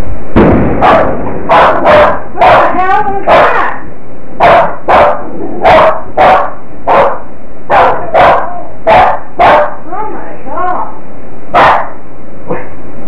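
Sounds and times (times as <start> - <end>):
small dog barking: 0.8 - 3.8, 4.4 - 9.8, 11.6 - 12.0.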